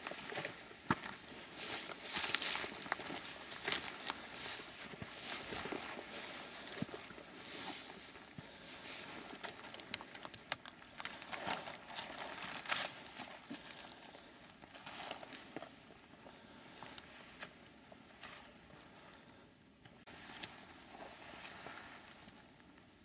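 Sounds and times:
footsteps on rocky ground: 0.0s - 10.0s
clothing and gear rustling: 0.1s - 9.7s.

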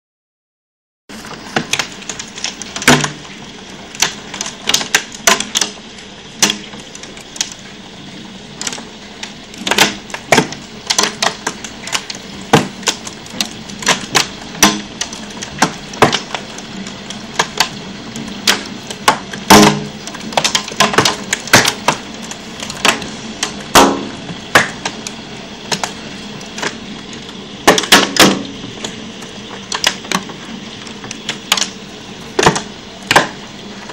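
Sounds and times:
heavy hail falling: 8.6s - 33.9s.

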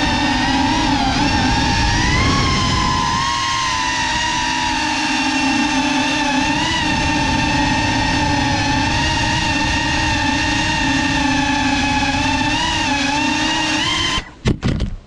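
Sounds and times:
quadcopter motors whining: 0.0s - 14.4s
wind rush on microphone: 0.0s - 15.0s.

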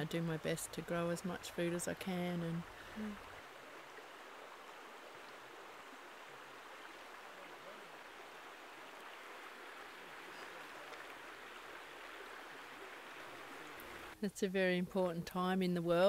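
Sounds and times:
creek water flowing over stones: 0.0s - 14.2s.

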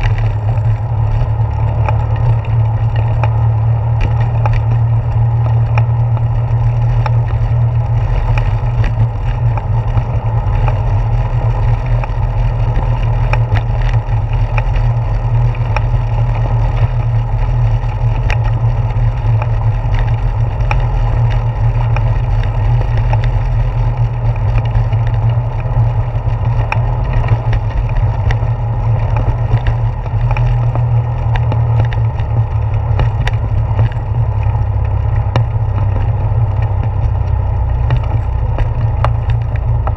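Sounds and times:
bicycle tyres rumbling on wooden boards: 0.0s - 39.9s
clicks of wheels over board joints: 0.0s - 39.9s.

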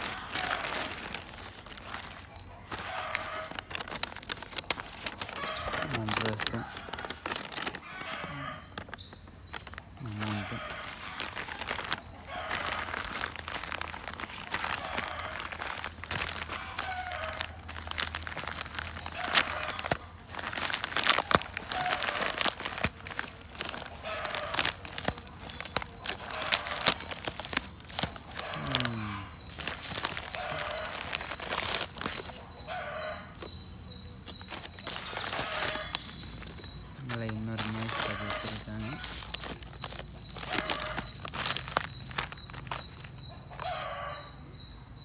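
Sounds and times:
plastic bag crinkling and tearing: 0.0s - 32.6s, 34.2s - 43.8s
rooster crowing: 32.6s - 33.4s, 43.6s - 44.4s.

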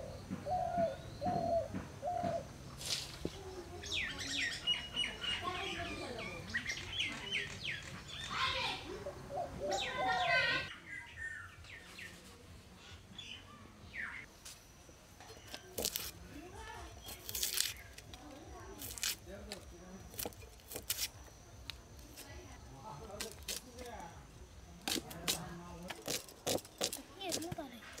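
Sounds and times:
small birds chirping: 0.0s - 14.3s, 15.2s - 28.0s.

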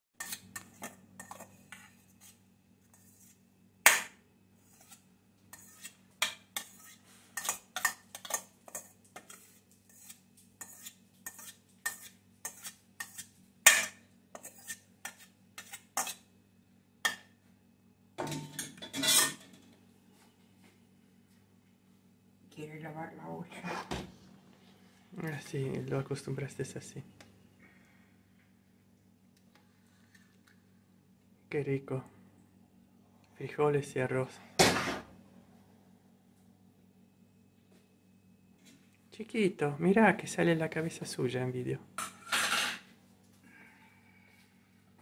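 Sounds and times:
spoon scraping metal colander: 0.2s - 16.2s, 18.8s - 19.4s
steady low hum: 0.2s - 45.0s.

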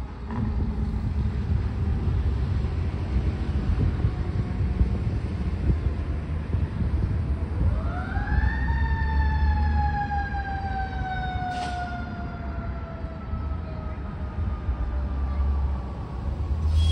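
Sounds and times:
steady low rumble: 0.0s - 8.4s.

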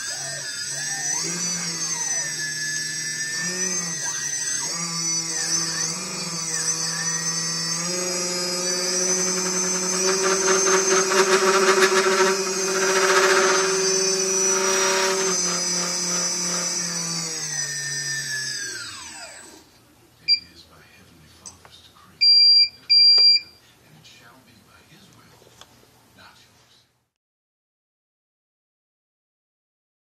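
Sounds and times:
electric motors whining: 0.0s - 19.7s.

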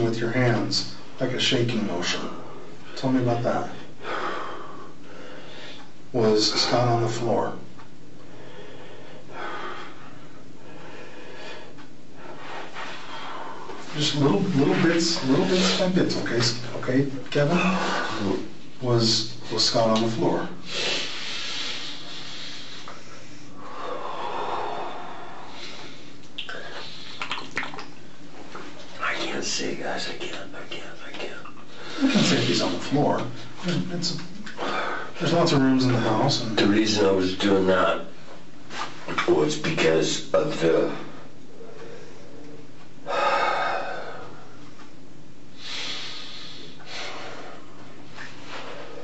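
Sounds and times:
steady hiss: 0.0s - 49.0s
man breathing heavily and sniffing: 20.6s - 27.2s, 45.6s - 49.0s.

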